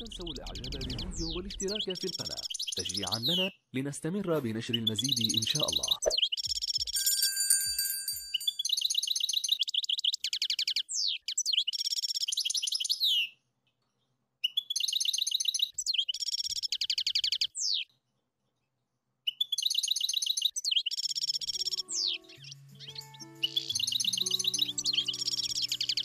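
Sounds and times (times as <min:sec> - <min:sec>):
finch singing high trills: 0:00.0 - 0:03.6, 0:04.8 - 0:07.0, 0:19.4 - 0:26.0.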